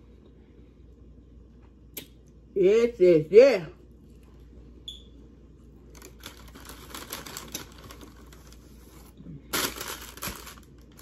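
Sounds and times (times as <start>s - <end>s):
paper bag rustling and crinkling: 5.9s - 11.0s.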